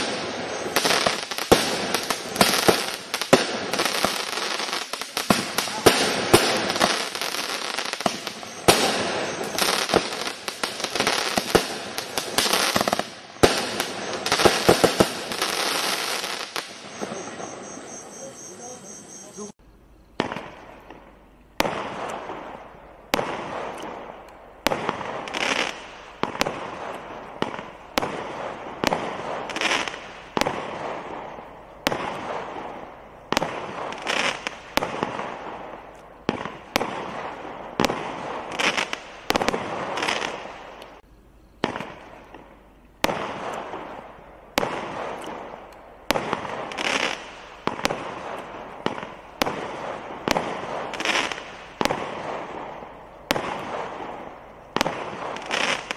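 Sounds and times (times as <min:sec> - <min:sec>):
firework shots banging: 0:00.0 - 0:17.8, 0:20.2 - 0:41.0, 0:41.6 - 0:55.9
firework crackling: 0:00.0 - 0:18.2, 0:20.2 - 0:41.0, 0:41.6 - 0:55.9.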